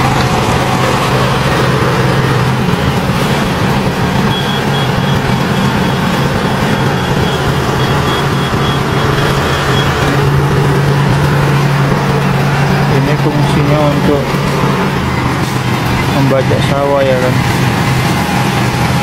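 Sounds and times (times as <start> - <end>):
tractor engine under load: 0.0 - 19.0
faint high beeping: 4.2 - 11.8.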